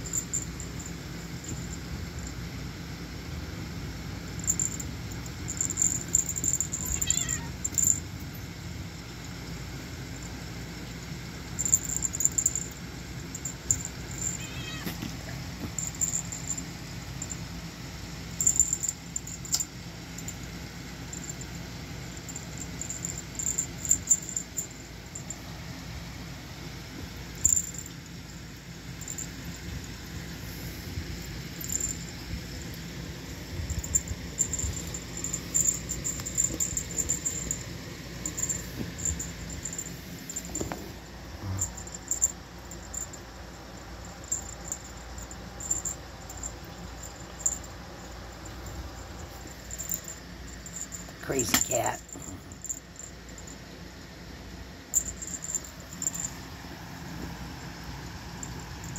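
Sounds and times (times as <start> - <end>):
steady low rumble: 0.0 - 53.6
cat rustling and bumping toy: 38.2 - 42.2.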